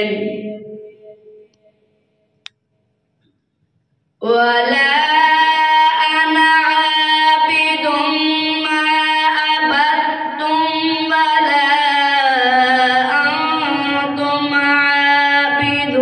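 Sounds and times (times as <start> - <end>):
boy reciting melodically: 0.0 - 0.9, 4.2 - 16.0.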